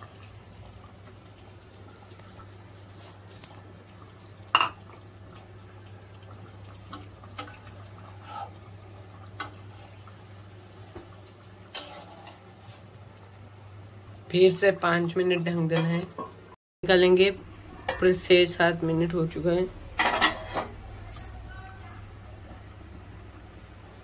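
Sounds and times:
curry bubbling in a pan: 0:00.0 - 0:16.4.

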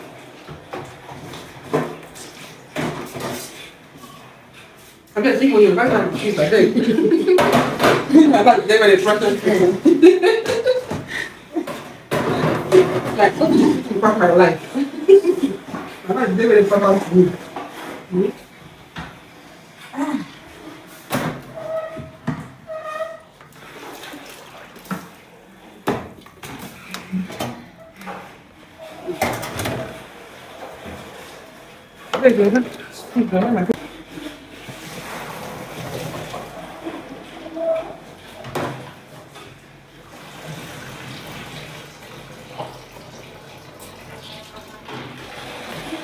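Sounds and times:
liquid sloshing in a metal pot: 0:21.8 - 0:39.4.

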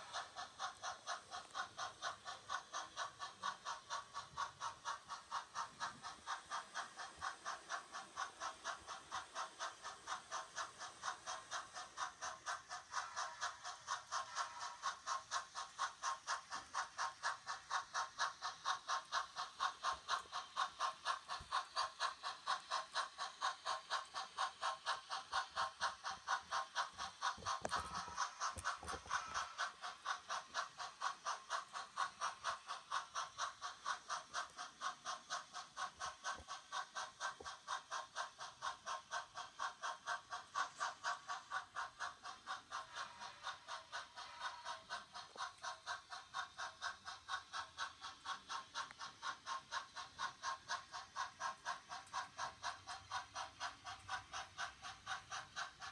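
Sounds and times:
model train running on track: 0:00.0 - 0:55.9
steady mechanical clicking: 0:00.0 - 0:55.9.

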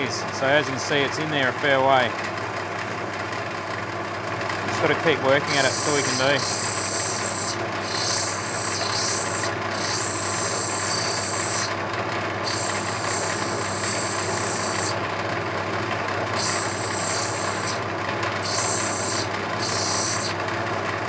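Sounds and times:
grinding wheel motor running: 0:00.0 - 0:21.0
high grinding hiss: 0:04.9 - 0:11.8, 0:12.4 - 0:15.0, 0:16.3 - 0:17.8, 0:18.4 - 0:20.4.

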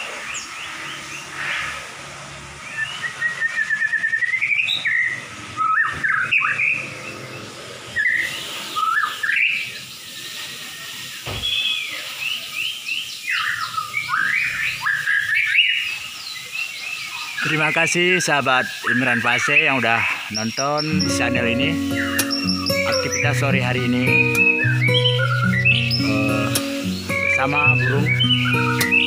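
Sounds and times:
bird singing whistled phrases: 0:02.6 - 0:06.9, 0:07.9 - 0:29.0.

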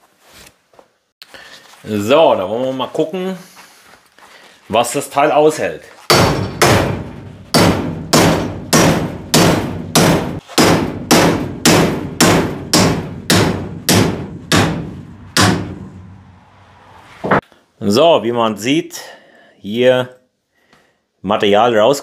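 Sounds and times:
hammer striking metal tube: 0:06.1 - 0:16.3.

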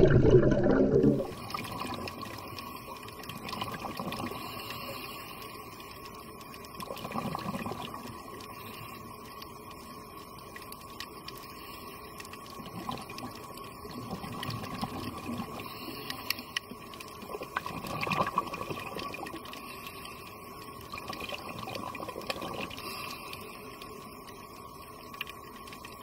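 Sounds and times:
underwater exhaled air bubbling: 0:00.0 - 0:05.3, 0:06.7 - 0:08.7, 0:12.5 - 0:20.2, 0:20.8 - 0:24.2
faint steady tone: 0:00.4 - 0:26.0
steady hiss: 0:01.3 - 0:26.0
faint clicks: 0:01.9 - 0:26.0.

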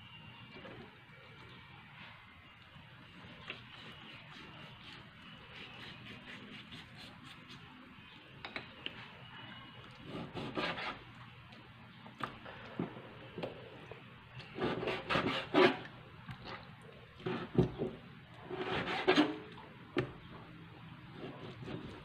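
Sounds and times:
knife sawing through meat: 0:03.7 - 0:07.4, 0:10.0 - 0:11.0, 0:14.6 - 0:15.8, 0:18.5 - 0:19.4.

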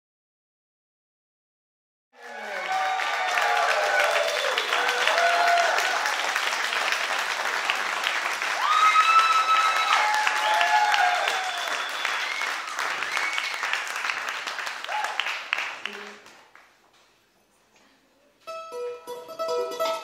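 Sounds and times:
audience applauding and cheering: 0:02.2 - 0:16.8.

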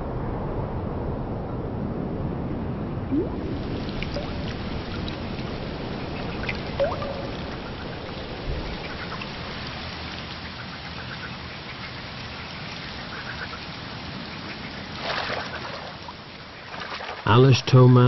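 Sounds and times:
rain pattering on water: 0:03.1 - 0:18.0
rising chirp: 0:06.7 - 0:08.0.

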